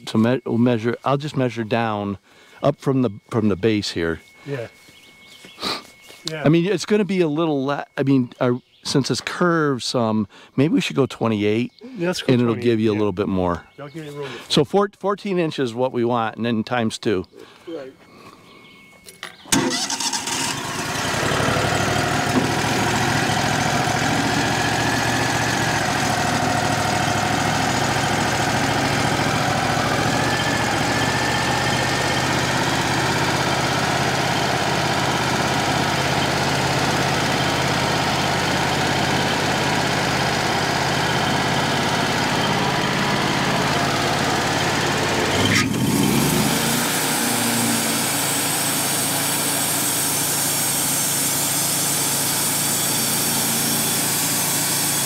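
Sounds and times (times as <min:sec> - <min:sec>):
sawmill engine running: 0:19.5 - 0:55.0.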